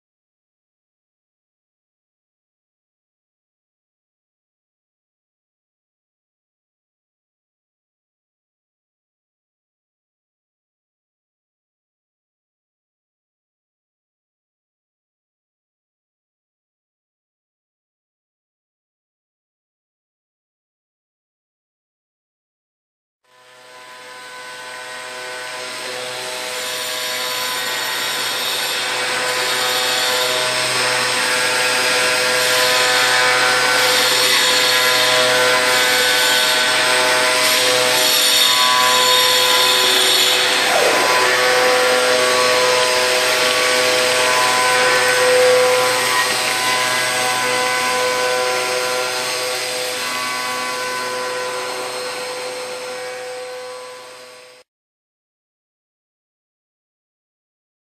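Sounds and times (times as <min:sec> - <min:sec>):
milling spindle whining: 0:25.0 - 0:53.8.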